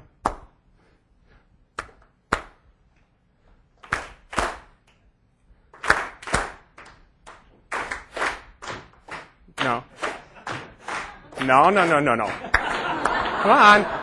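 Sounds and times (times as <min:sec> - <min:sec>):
hand clapping: 0:00.1 - 0:00.6, 0:01.8 - 0:02.7, 0:03.8 - 0:05.0, 0:05.7 - 0:13.8.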